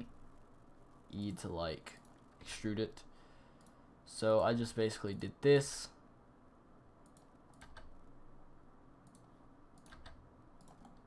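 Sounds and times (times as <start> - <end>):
computer mouse and keyboard clicks: 7.0 - 8.0, 9.0 - 11.0.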